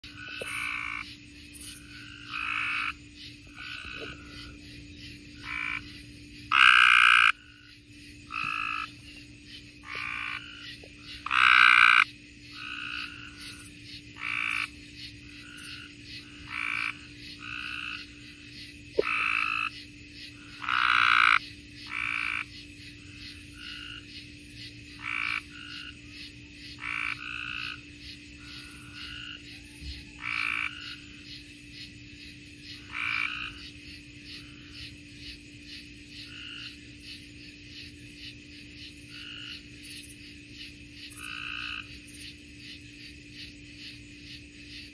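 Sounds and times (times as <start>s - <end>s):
tree frogs croaking: 0.0s - 44.9s.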